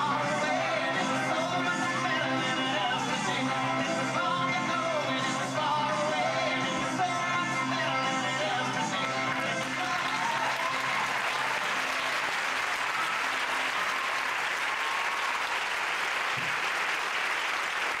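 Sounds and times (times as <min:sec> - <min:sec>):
recorded rock song: 0:00.0 - 0:11.1
audience applauding: 0:08.8 - 0:18.0.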